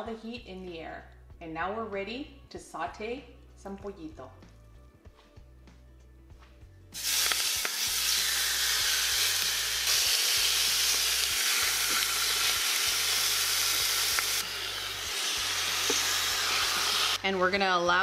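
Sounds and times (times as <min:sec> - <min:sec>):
chicken sizzling in a hot pot: 0:07.0 - 0:17.2.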